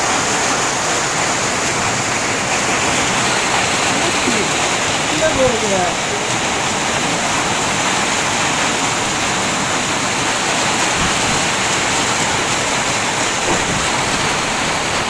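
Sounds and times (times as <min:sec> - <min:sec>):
heavy rain with hail: 0:00.0 - 0:15.0.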